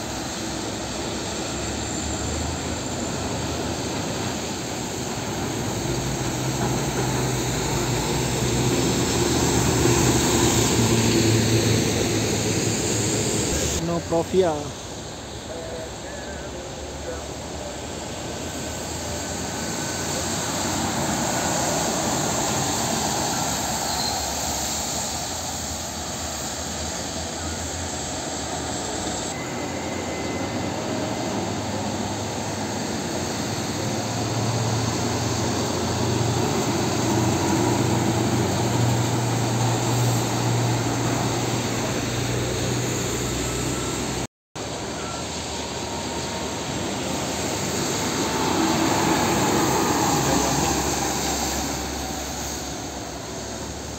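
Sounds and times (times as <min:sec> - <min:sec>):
trucks passing on wet road: 0:00.0 - 0:15.0, 0:19.3 - 0:25.4, 0:33.9 - 0:53.9
traffic tyre noise: 0:00.0 - 0:17.8, 0:18.4 - 0:53.9.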